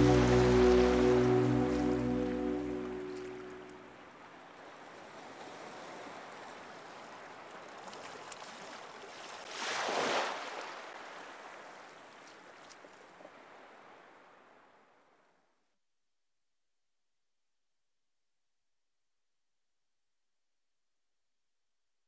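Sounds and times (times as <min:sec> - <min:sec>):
music: 0:00.0 - 0:03.8.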